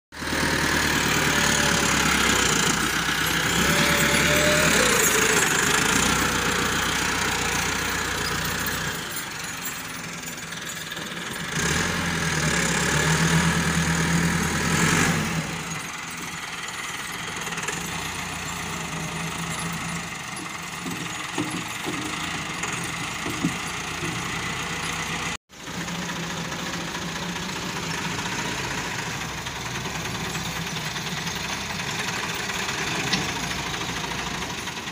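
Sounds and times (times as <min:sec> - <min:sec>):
diesel tractor engine under load: 0:00.1 - 0:34.9.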